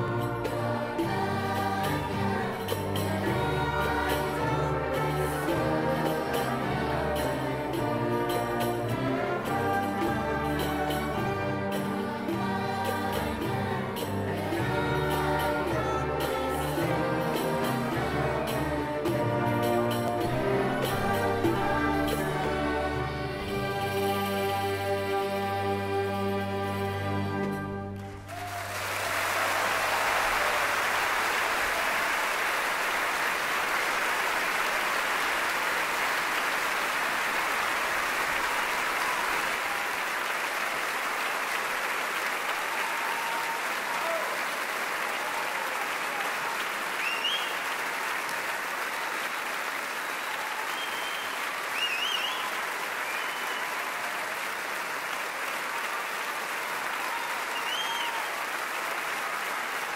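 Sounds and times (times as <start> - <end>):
audience applauding: 28.0 - 59.9
cheers: 28.1 - 59.9.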